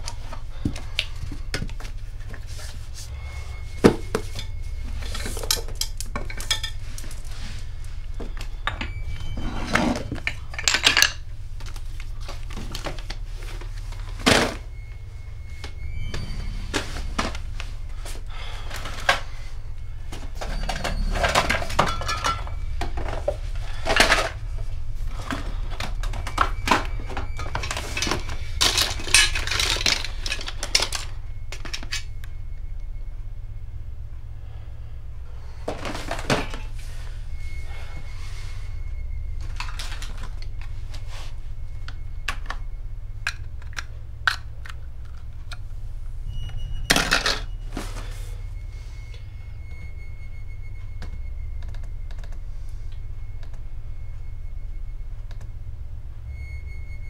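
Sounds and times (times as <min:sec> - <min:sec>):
low hum: 0:00.0 - 0:57.0
objects knocking and clinking: 0:03.8 - 0:07.2, 0:08.2 - 0:11.8, 0:20.4 - 0:24.5, 0:25.3 - 0:32.1, 0:46.8 - 0:47.5.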